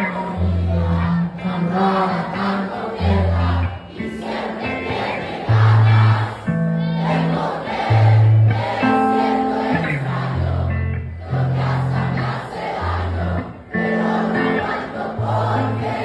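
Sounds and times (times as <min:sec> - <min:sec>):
man singing into microphone: 0:00.0 - 0:04.2
bass guitar: 0:00.0 - 0:16.0
crowd singing along: 0:00.0 - 0:16.0
electric guitar: 0:00.0 - 0:16.0.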